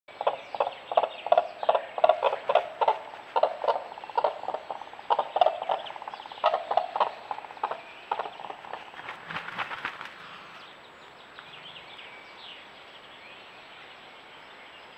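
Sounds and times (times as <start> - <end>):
cranes calling: 0.2 - 10.6.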